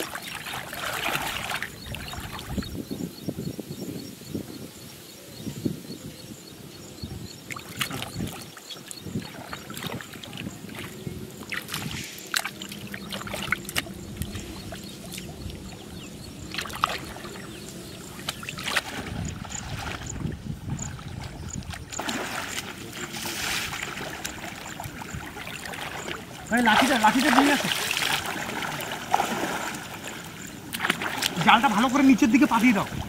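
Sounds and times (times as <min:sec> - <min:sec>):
man churning water: 0:00.0 - 0:02.6, 0:07.5 - 0:33.0
water sloshing and splashing: 0:00.0 - 0:02.7, 0:07.5 - 0:33.0.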